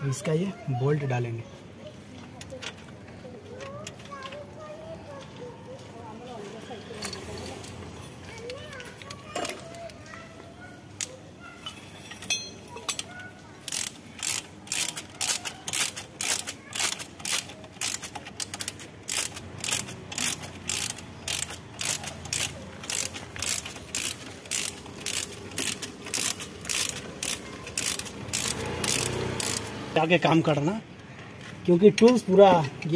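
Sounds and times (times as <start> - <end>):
ratchet wrench clicking: 12.2 - 29.8.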